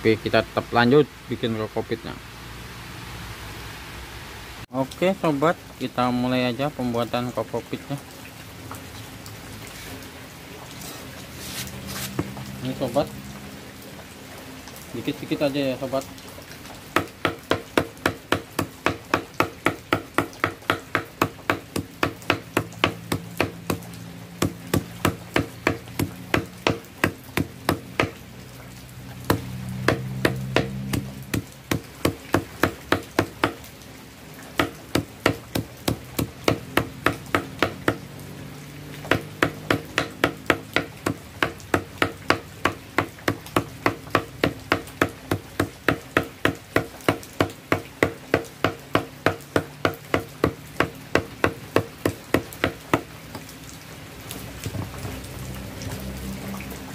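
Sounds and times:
machete chopping on wooden block: 17.0 - 23.8, 24.4 - 28.2, 29.3 - 33.6, 34.6 - 38.0, 39.1 - 53.1.

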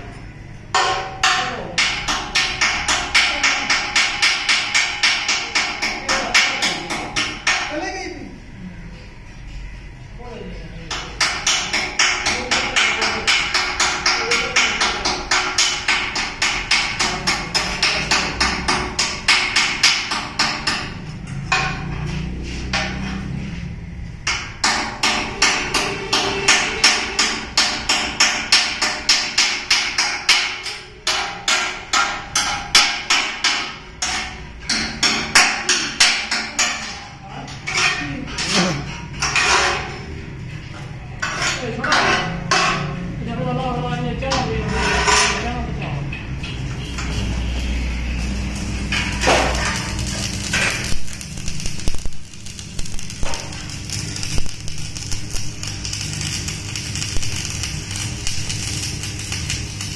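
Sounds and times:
hammer striking steel: 0.7 - 7.8, 10.9 - 23.3, 24.2 - 38.0, 46.4 - 59.9.

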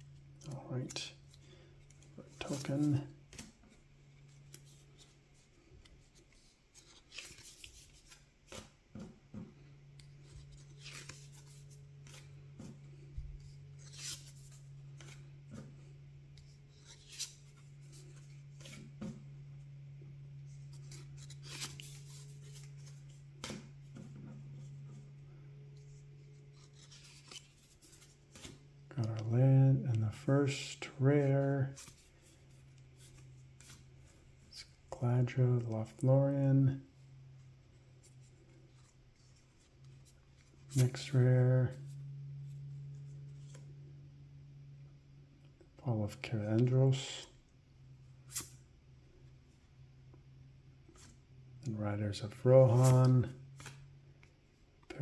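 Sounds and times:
steady low hum: 0.0 - 55.0
cards swishing and snapping: 0.3 - 9.2, 9.9 - 15.7, 20.5 - 24.7, 25.8 - 29.2, 48.2 - 48.6, 52.7 - 54.3.

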